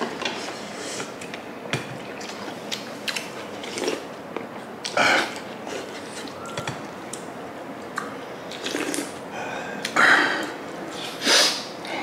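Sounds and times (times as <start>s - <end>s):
person chewing food: 1.0s - 9.2s
loud sharp breath: 11.1s - 12.0s.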